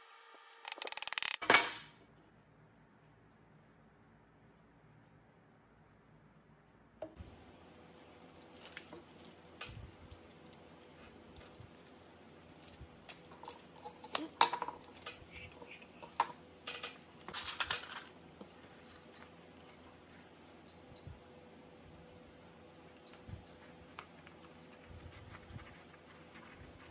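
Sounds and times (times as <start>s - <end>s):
tape rustles and crackles: 7.8s - 21.2s, 22.7s - 26.9s.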